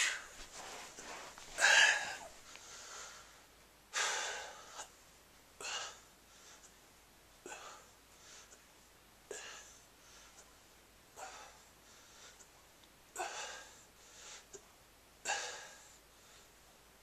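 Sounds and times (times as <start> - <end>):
man breathing hard: 1.0 - 4.9, 5.6 - 6.8, 7.4 - 8.6, 11.2 - 12.6, 13.2 - 14.6, 15.2 - 16.6.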